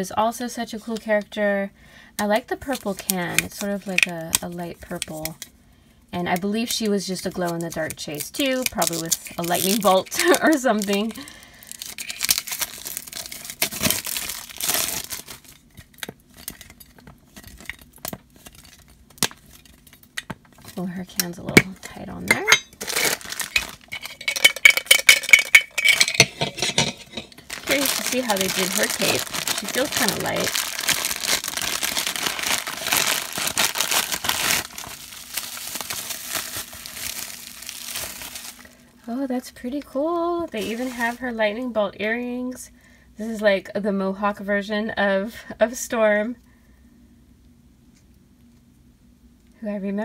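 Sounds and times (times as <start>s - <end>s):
plastic wrap crinkling and tearing: 6.6s - 20.9s, 21.8s - 38.8s, 40.5s - 41.3s.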